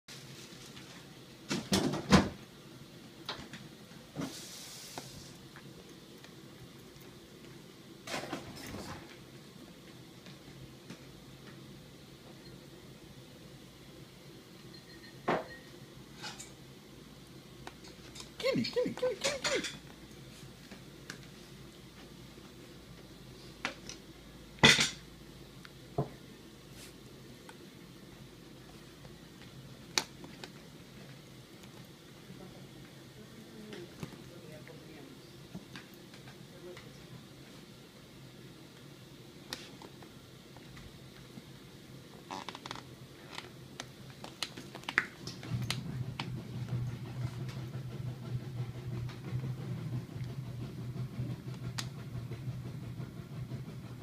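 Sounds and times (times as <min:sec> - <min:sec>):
soft hiss: 0:04.1 - 0:06.9.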